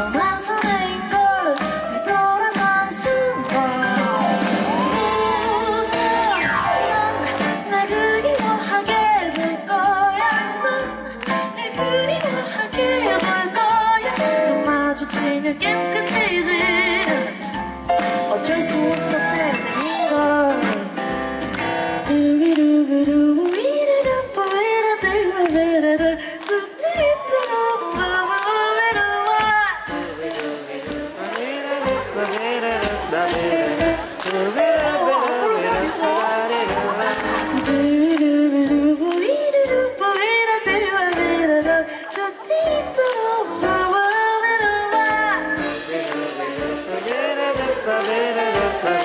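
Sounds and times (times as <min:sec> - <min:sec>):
live band playing: 0:00.0 - 0:49.0.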